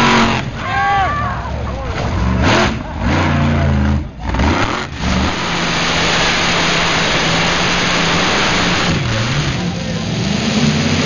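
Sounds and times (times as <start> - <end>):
tractor engine revving: 0.0 - 11.0
pulling tractor running flat out: 1.2 - 11.0.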